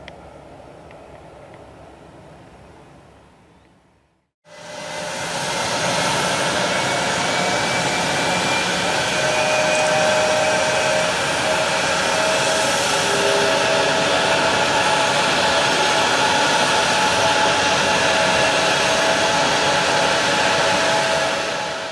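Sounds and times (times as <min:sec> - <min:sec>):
jet turbine whine: 0:04.5 - 0:21.9.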